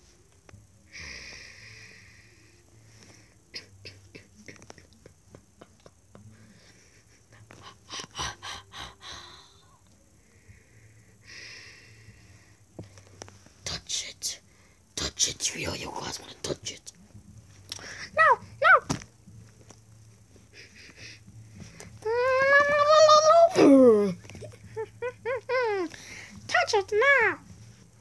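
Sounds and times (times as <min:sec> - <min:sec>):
person wheezy breathing: 0:00.9 - 0:04.4, 0:06.2 - 0:12.7, 0:20.3 - 0:22.0, 0:25.8 - 0:26.5.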